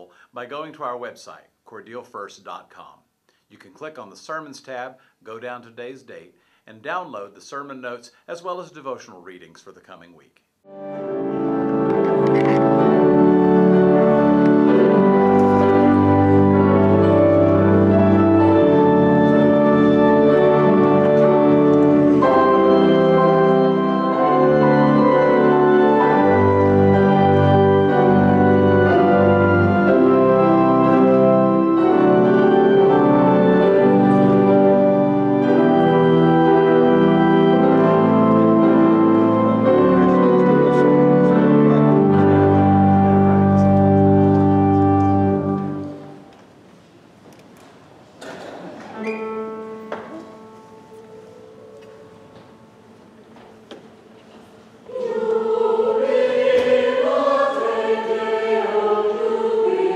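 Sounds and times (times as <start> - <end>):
pipe organ playing chords: 10.7 - 46.4, 48.5 - 53.9, 54.9 - 59.9.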